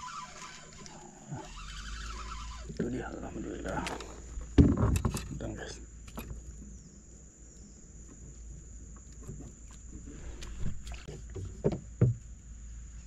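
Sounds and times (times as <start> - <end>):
fishing gear knocking in a boat: 3.8 - 5.4.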